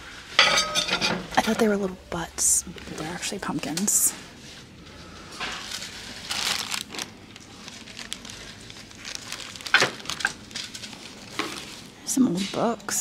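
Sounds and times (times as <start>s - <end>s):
rustling and crinkling: 2.8s - 13.0s.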